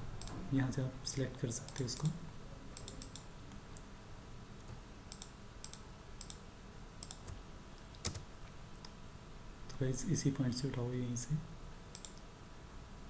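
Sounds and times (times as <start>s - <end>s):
mouse and keyboard clicks: 4.6s - 6.4s, 7.0s - 8.2s, 11.9s - 12.2s.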